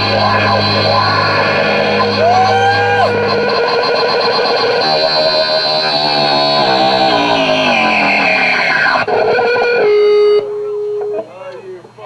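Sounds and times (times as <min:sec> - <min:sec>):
distorted electric guitar: 0:00.0 - 0:11.3.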